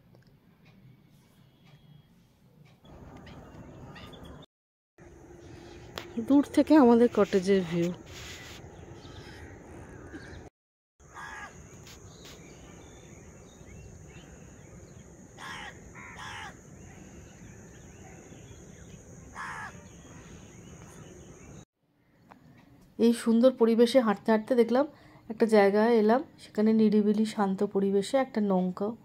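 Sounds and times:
low outdoor background: 0.0 - 29.0
bird calling: 2.8 - 4.4, 8.1 - 21.6.

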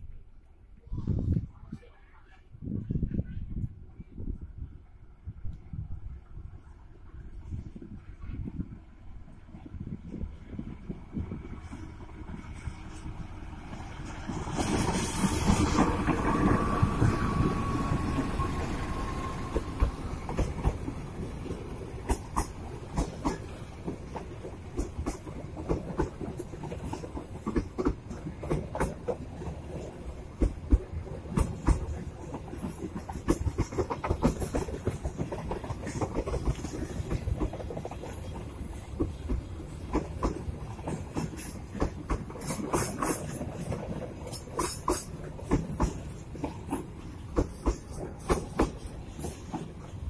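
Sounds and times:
train coaches rumbling past: 6.4 - 50.0
wheels clacking over rail joints: 11.6 - 50.0.

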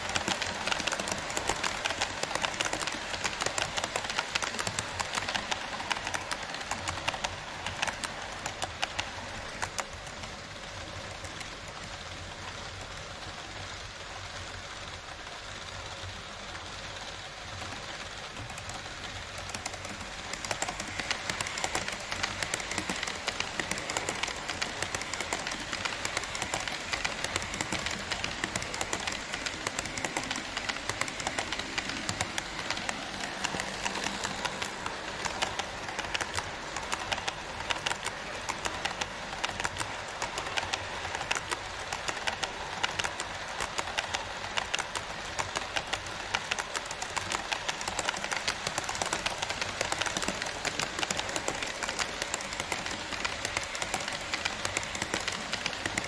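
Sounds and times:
model train wheels rolling: 0.0 - 56.0
clicking over rail joints: 17.7 - 56.0.

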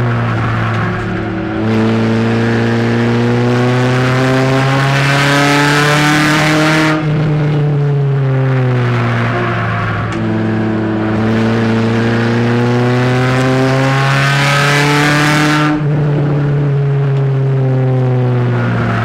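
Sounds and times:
race car engine revving: 0.0 - 19.0.

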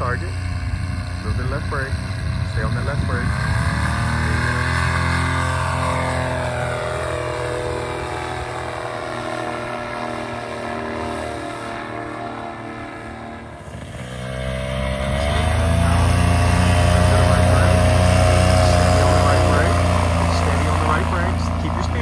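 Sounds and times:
paramotor engine and propeller: 0.0 - 22.0.

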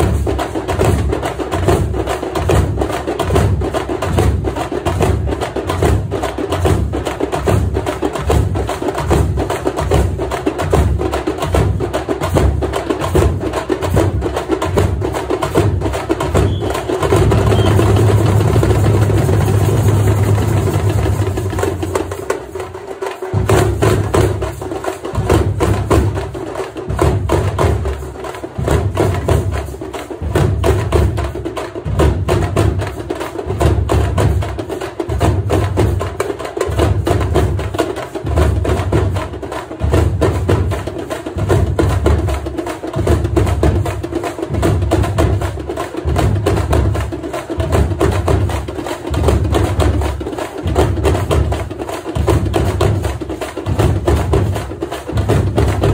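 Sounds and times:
drums beating fast rhythm: 0.0 - 55.9
deep drum beat: 6.7 - 28.0, 49.2 - 55.9.

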